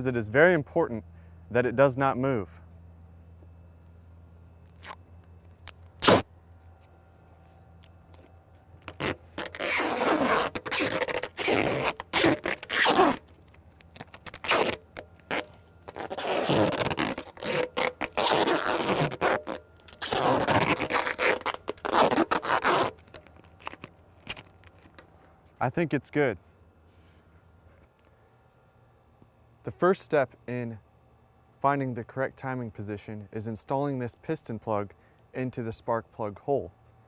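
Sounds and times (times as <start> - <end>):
duct tape ripping off roll: 4.6 - 6.3, 8.8 - 25.1.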